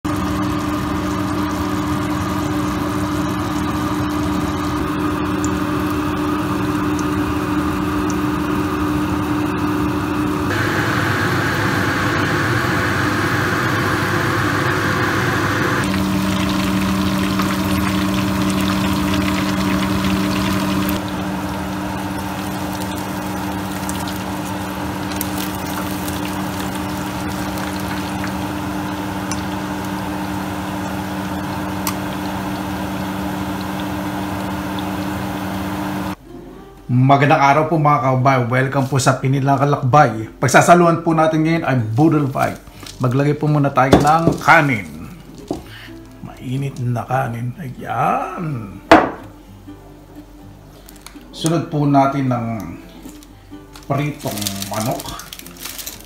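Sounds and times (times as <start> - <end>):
chicken frying in hot oil: 0.0 - 9.5, 10.4 - 36.2, 53.9 - 56.0
sauce simmering: 15.8 - 36.2.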